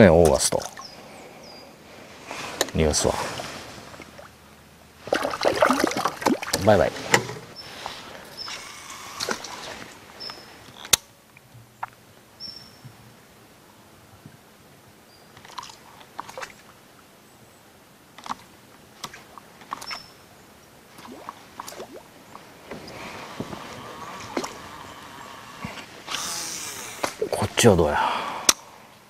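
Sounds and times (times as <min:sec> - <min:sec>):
lure splashing on water: 0:05.0 - 0:07.2, 0:20.9 - 0:27.4.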